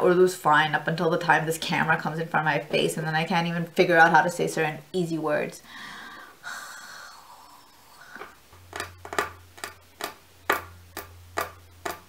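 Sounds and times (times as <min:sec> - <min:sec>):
low steady hum: 0:00.0 - 0:12.0
breathy exhale: 0:05.7 - 0:08.4.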